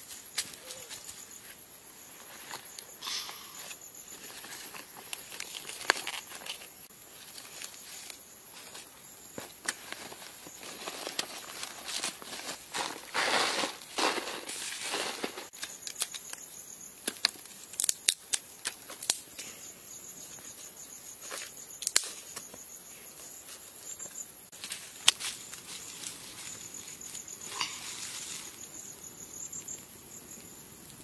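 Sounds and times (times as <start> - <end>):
insects trilling: 0.0 - 31.0
twig fire crackling: 3.9 - 19.5, 24.5 - 31.0.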